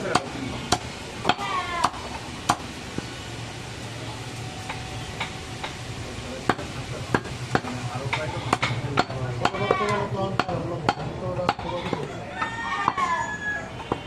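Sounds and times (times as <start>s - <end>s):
blade knocking on wooden block: 7.2s - 13.0s.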